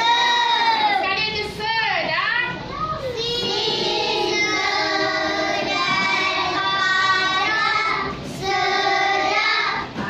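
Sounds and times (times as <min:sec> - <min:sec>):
children singing in unison: 0:00.0 - 0:01.0, 0:03.2 - 0:10.0.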